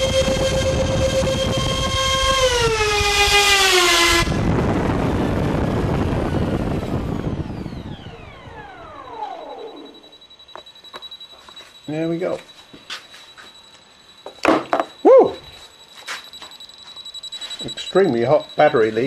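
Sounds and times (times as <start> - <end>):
fans spinning down: 0.0 - 12.3
model jet fans whining: 0.0 - 19.0.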